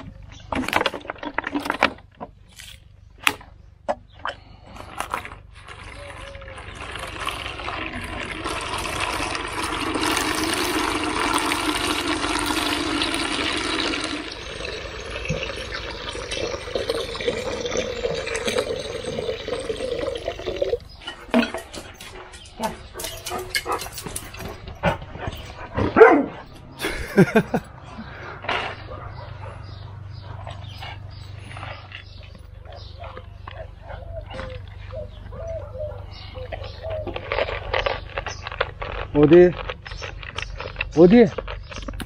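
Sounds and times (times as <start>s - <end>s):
dog barking: 25.9s - 26.4s, 28.8s - 30.1s.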